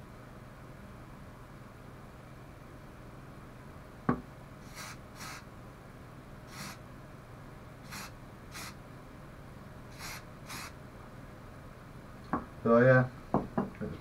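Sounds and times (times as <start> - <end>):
spray can hissing: 4.6 - 5.4, 6.5 - 6.8, 7.8 - 8.8, 9.9 - 10.8.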